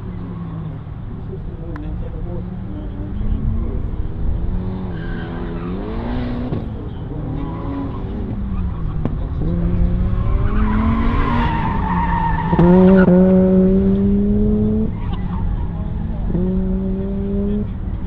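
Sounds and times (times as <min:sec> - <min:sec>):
car engine revving: 0:00.0 - 0:18.0
tires squealing on asphalt: 0:02.5 - 0:16.5.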